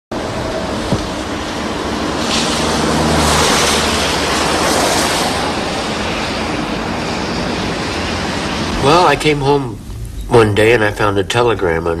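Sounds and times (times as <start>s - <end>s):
tyre hiss on wet road: 1.2s - 6.4s.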